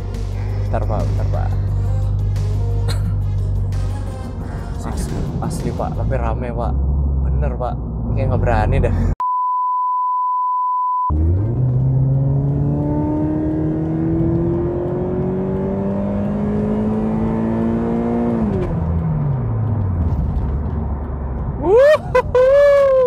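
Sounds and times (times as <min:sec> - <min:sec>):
car engine accelerating hard: 0:11.1 - 0:21.7.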